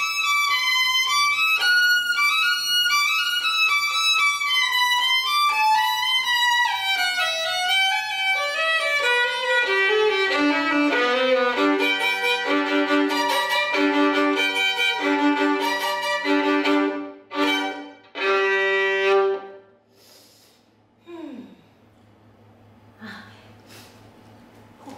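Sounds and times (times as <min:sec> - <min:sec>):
solo violin playing: 0:00.0 - 0:19.7.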